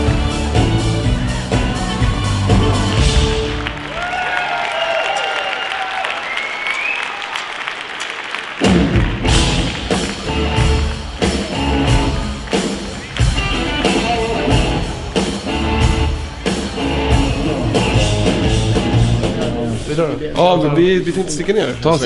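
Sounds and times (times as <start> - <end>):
steady drum beat: 0.0 - 3.8, 8.6 - 19.9
electric guitars: 8.6 - 19.9.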